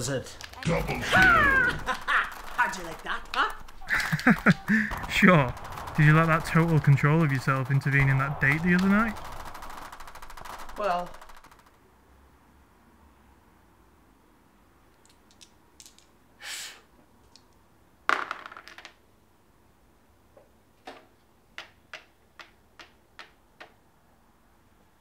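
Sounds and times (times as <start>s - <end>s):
dice rattling and clattering: 2.0s - 4.6s, 18.1s - 19.0s
game token tapping on board: 21.6s - 23.8s.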